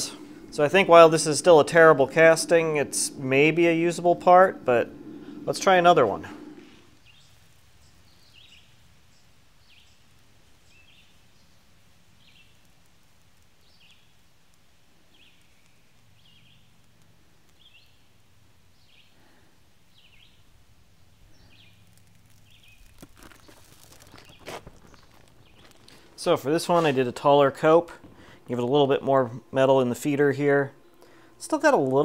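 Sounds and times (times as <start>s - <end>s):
faint bird chirping: 0.0s - 12.8s, 15.0s - 16.8s, 17.4s - 26.8s
low steady hum: 0.0s - 32.0s.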